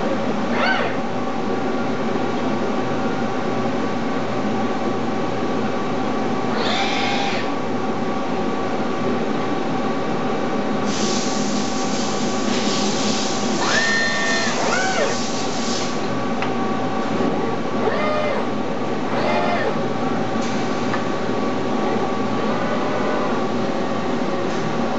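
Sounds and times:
machine hum with held tones: 21.0s - 24.9s.

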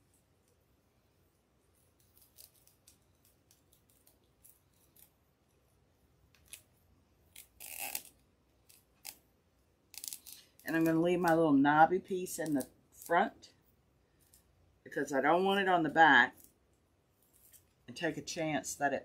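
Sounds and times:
zip tie clicks and rustles: 1.7s - 5.6s, 6.3s - 9.2s, 9.9s - 11.0s
zip tie rasp: 7.3s - 9.2s.

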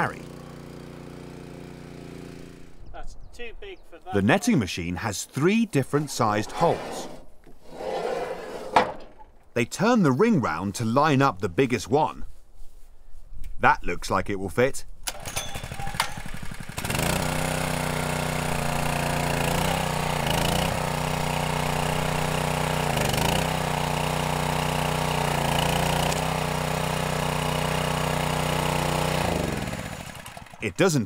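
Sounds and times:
small engine running: 0.0s - 2.8s, 15.1s - 30.8s.

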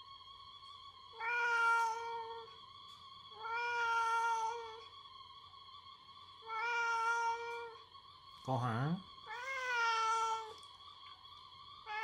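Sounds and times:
cat meowing: 1.1s - 2.5s, 3.3s - 4.8s, 6.4s - 7.8s, 9.3s - 10.6s.

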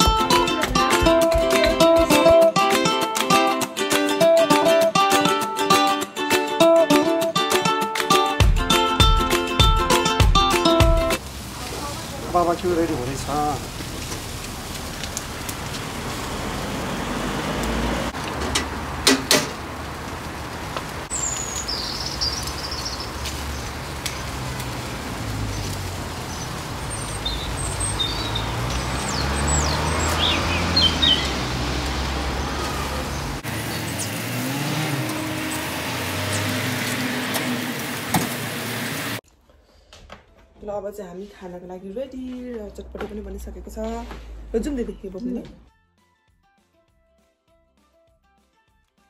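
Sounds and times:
meat sizzling on grill: 10.8s - 39.2s
birds chirping: 21.1s - 37.2s.

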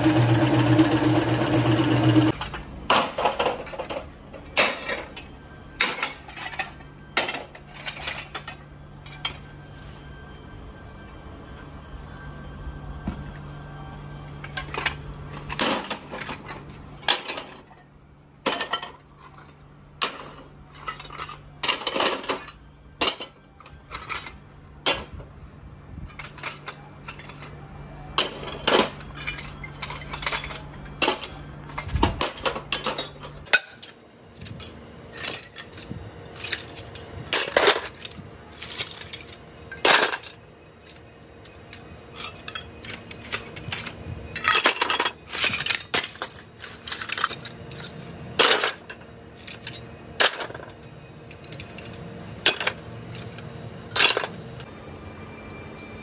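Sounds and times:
scrap iron clanking into metal wheelbarrow: 28.2s - 54.4s.

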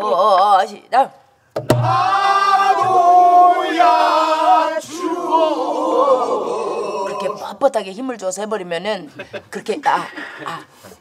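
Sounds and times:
barrel drum stroke: 1.6s - 2.1s
voices singing folk song: 1.7s - 7.6s.

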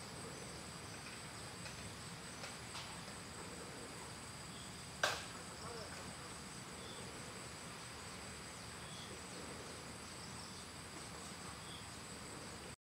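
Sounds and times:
insects trilling: 0.0s - 12.8s.

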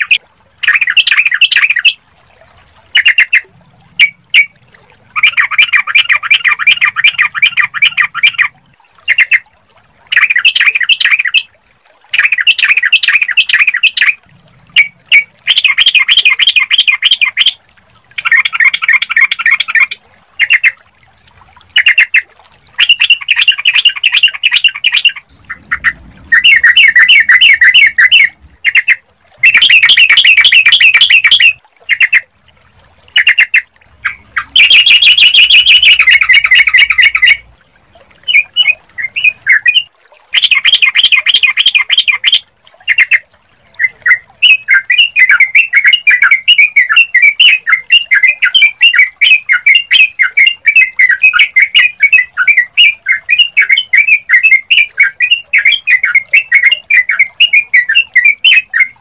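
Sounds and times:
bird chattering song: 0.0s - 1.9s, 5.2s - 8.5s, 12.2s - 17.5s, 18.2s - 20.8s, 22.8s - 32.2s, 33.2s - 37.4s, 43.8s - 59.0s.

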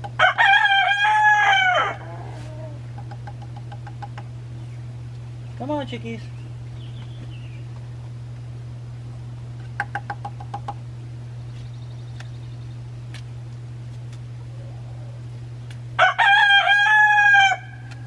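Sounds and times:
exhaust fan humming: 0.0s - 18.0s
rooster crowing: 0.2s - 2.8s, 16.0s - 17.9s.

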